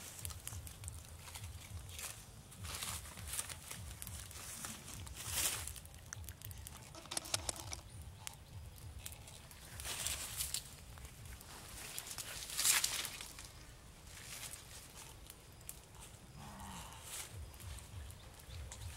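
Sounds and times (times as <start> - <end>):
leaves and twigs rustling: 0.0 - 18.9
small clicks: 6.9 - 7.9.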